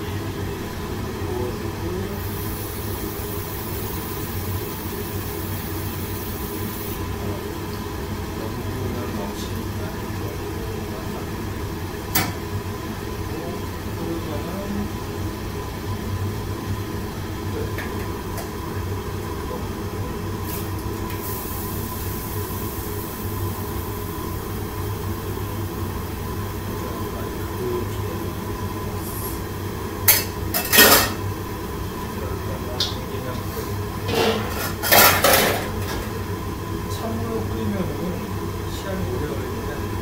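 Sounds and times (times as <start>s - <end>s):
gas burner roaring: 0.0s - 40.0s.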